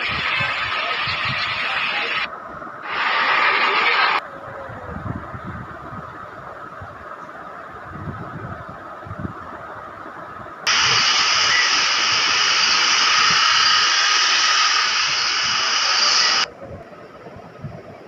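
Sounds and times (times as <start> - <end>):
heavy rain hissing: 0.0 - 4.2, 10.7 - 16.5.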